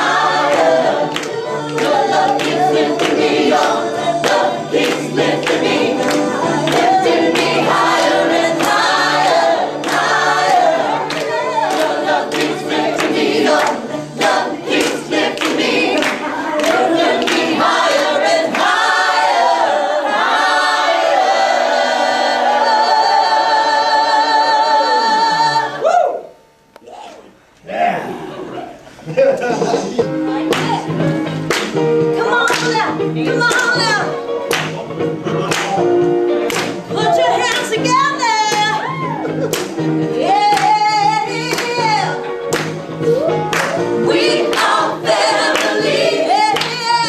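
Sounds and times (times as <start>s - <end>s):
rhythmic clapping: 0.0s - 24.5s, 29.5s - 47.0s
group singing together: 0.0s - 26.0s, 29.4s - 47.0s.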